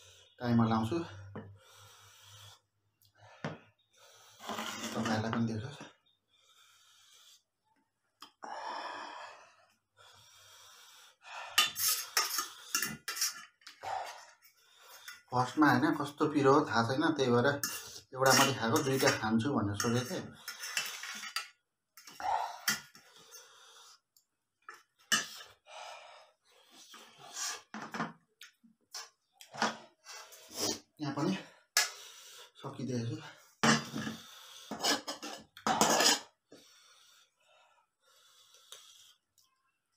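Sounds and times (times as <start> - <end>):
man breathing hard and hissing: 1.6 - 4.5, 6.4 - 7.6, 8.4 - 12.8, 31.5 - 32.6, 36.5 - 39.2
spoon scraping on steel plate: 4.4 - 5.4, 11.6 - 13.7, 17.5 - 23.0, 25.1 - 25.5, 33.6 - 36.3.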